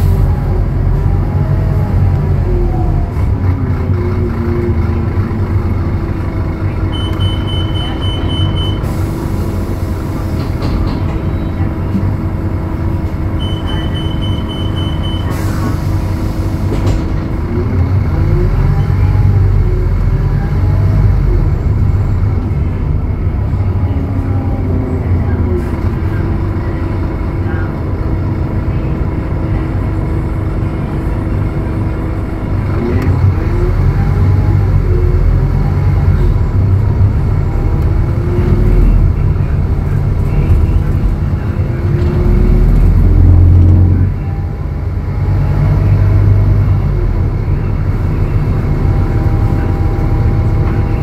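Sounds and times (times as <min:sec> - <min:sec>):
bus diesel engine: 0:00.0 - 0:51.0
high beep: 0:06.9 - 0:08.8, 0:13.4 - 0:15.3.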